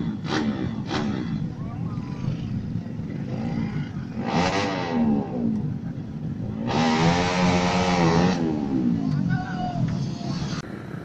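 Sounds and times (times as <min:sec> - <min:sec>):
motorcycles revving past: 0:00.0 - 0:05.7, 0:06.4 - 0:09.2.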